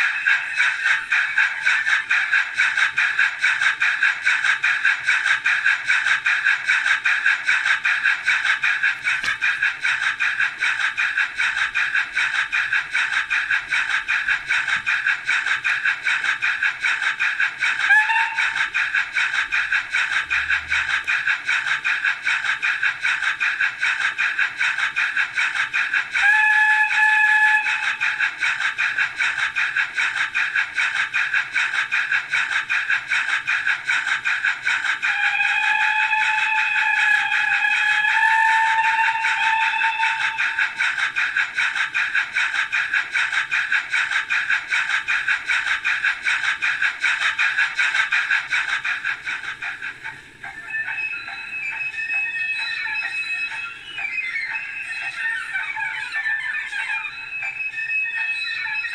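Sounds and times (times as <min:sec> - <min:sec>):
steam exhaust chuffs from small speaker: 0:00.0 - 0:55.0
locomotive whistle: 0:17.8 - 0:19.0, 0:26.2 - 0:28.2, 0:35.1 - 0:41.0, 0:50.6 - 0:58.9.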